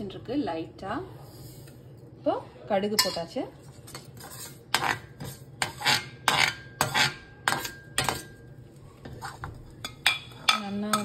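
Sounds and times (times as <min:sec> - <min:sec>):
spoon clinking and scraping pan: 0:03.0 - 0:08.5, 0:09.1 - 0:11.0.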